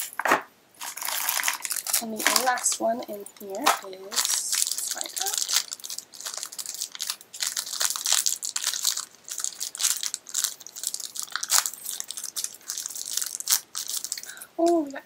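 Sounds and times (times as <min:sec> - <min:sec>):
wrapper crinkling and crackling: 0:00.8 - 0:15.0.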